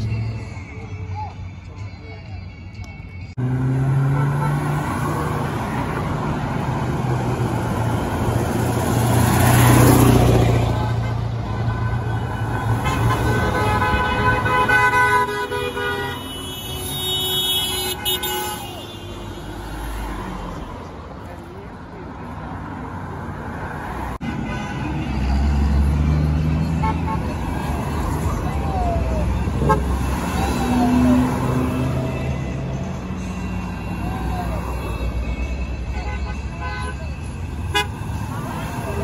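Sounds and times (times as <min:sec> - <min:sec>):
cars and trucks passing: 0:00.0 - 0:39.0
car horn: 0:03.4 - 0:05.6, 0:10.6 - 0:19.9, 0:24.2 - 0:25.6, 0:26.6 - 0:28.3, 0:29.3 - 0:32.5, 0:33.4 - 0:39.0.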